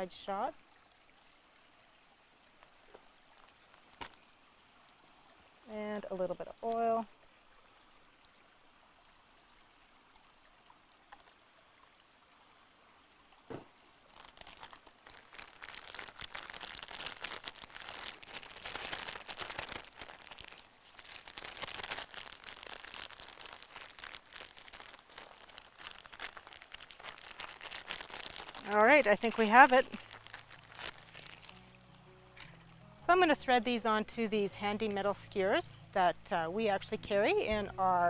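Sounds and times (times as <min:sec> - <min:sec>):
plastic bag crinkling: 0:13.5 - 0:33.2.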